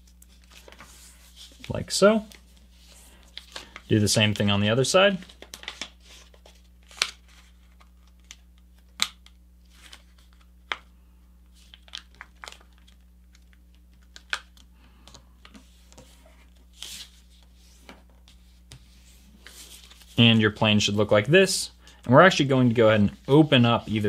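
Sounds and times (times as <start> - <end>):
paper being folded and creased: 0.0 - 3.9, 5.2 - 8.4, 15.4 - 20.2.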